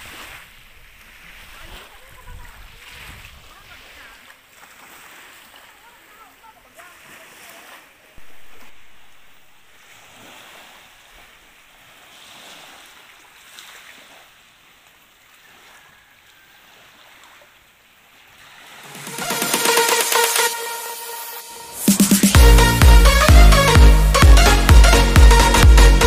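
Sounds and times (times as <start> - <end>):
wind on microphone: 0.0 - 3.8
small waves on pebbly shore: 0.0 - 19.1.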